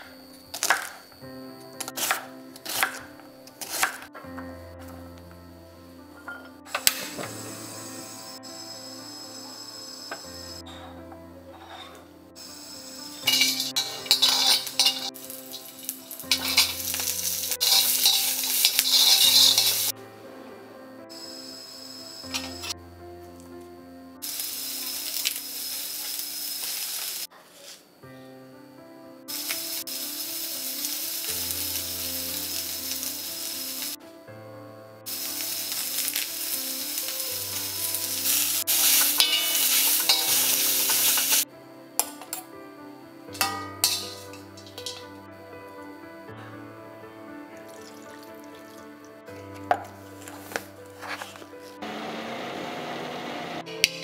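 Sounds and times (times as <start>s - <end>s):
soft background music: 0.0s - 54.0s
spices sizzling in hot fat: 1.8s - 4.0s, 12.4s - 19.9s, 24.2s - 27.8s, 29.3s - 34.0s, 35.1s - 41.4s, 43.4s - 45.1s
metal spatula scraping a pan: 11.6s - 12.0s, 13.2s - 19.9s, 38.2s - 41.4s, 43.4s - 45.0s.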